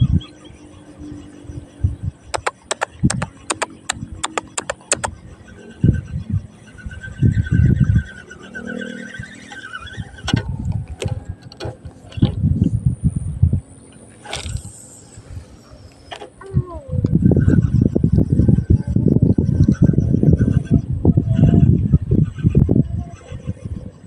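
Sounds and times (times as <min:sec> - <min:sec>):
sharp clicks: 0:02.3 - 0:05.2.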